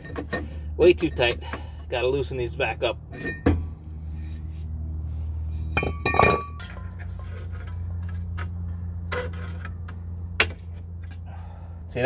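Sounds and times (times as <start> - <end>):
metal brake parts clanking: 0.0 - 1.8, 3.1 - 4.4, 5.5 - 11.3
steady low hum: 0.0 - 12.0.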